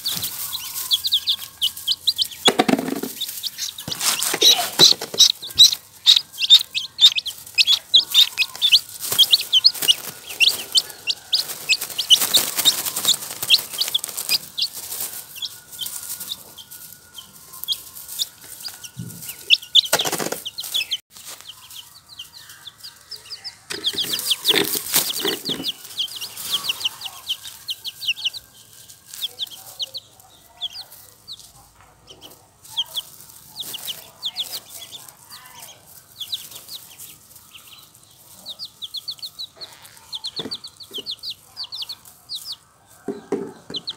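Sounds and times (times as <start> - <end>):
chicks and ducklings peeping: 0.0 - 43.9.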